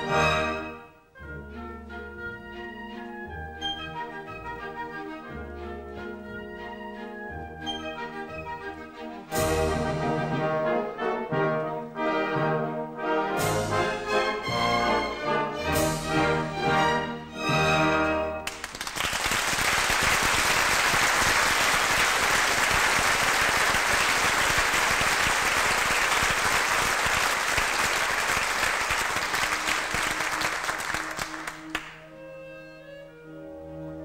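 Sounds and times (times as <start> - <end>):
orchestra strings sustained notes: 0.0 - 18.5
audience applauding: 18.4 - 32.0.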